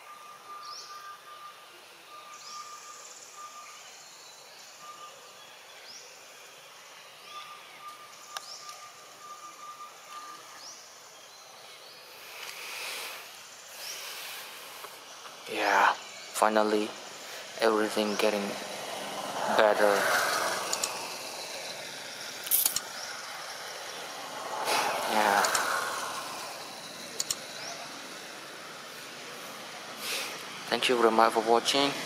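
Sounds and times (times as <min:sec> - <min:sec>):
whistled bird note: 0:00.0 - 0:04.0
high insect drone: 0:00.0 - 0:32.0
rustling hiss: 0:00.0 - 0:32.0
bird short rising call: 0:22.9 - 0:26.8.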